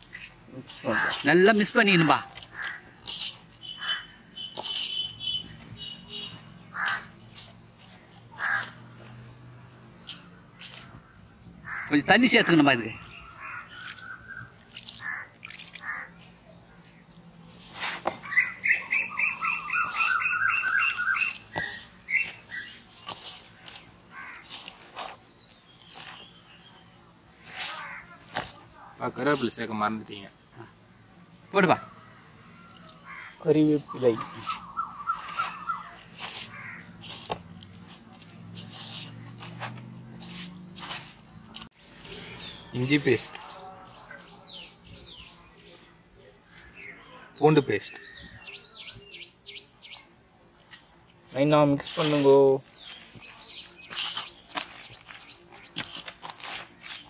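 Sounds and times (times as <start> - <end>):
hands squelching wet batter: 0.0 - 9.2, 10.0 - 11.1, 12.4 - 19.1, 19.8 - 28.5, 34.2 - 42.2, 46.4 - 47.0, 51.8 - 57.0
bird chirping: 0.1 - 27.1, 32.7 - 37.4, 40.8 - 51.2, 51.9 - 57.0.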